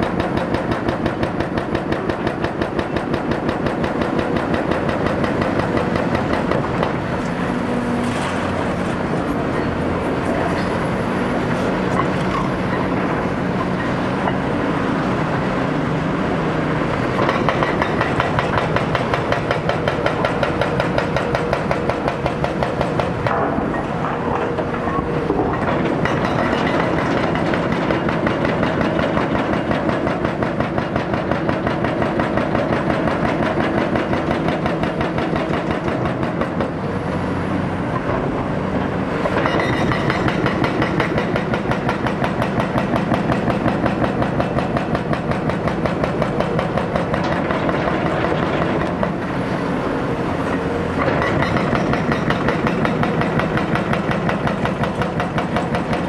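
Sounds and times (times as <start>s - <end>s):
hydraulic breaker hammering concrete: 0.0s - 7.2s, 17.1s - 36.8s, 39.2s - 49.3s, 50.9s - 56.0s
excavator diesel engine: 0.0s - 56.0s.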